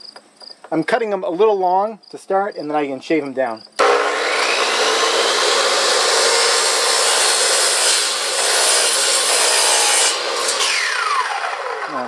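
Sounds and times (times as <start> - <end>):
miter saw cutting wood: 3.8 - 12.0
saw motor winding down: 3.8 - 12.0.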